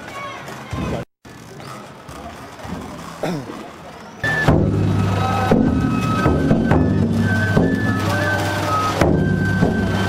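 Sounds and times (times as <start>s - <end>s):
bamboo flute melody: 4.2s - 10.0s
drum strokes: 4.2s - 10.0s.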